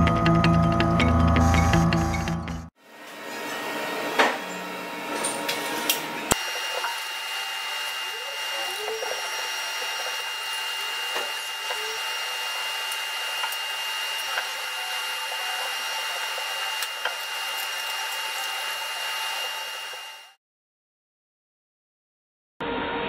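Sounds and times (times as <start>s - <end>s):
machine shop machinery whirring: 2.8s - 20.4s.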